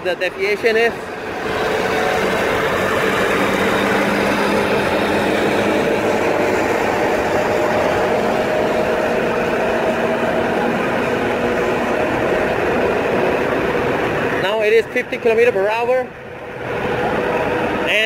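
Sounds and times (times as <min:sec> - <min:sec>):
scooter tyre noise: 0:00.6 - 0:18.0
wind rushing: 0:00.9 - 0:14.5.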